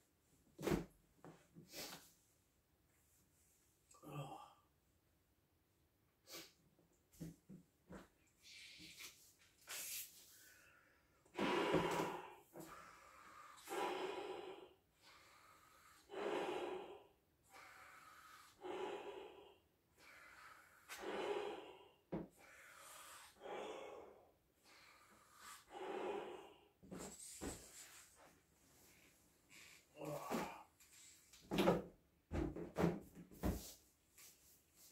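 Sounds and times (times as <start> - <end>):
person blowing into balloon: 11.4 - 12.8.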